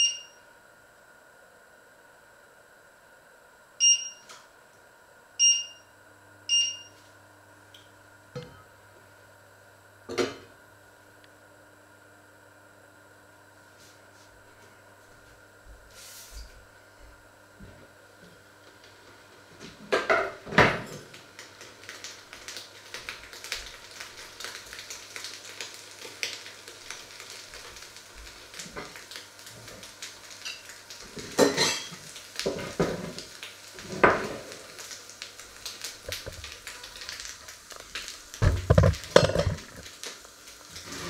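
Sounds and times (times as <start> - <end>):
food frying crackle: 18.0 - 41.0
metal pots and utensils clinking: 31.4 - 31.9.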